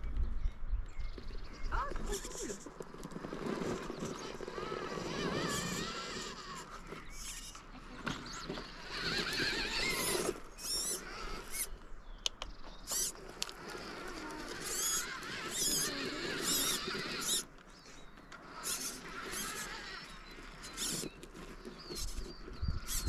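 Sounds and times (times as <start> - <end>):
electric motor whining: 1.8 - 11.8, 12.8 - 23.0
sharp clicks: 12.2 - 17.7.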